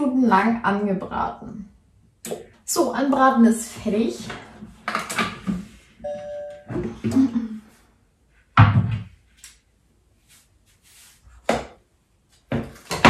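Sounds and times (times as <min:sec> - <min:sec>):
short electronic beep: 0:06.0 - 0:06.7.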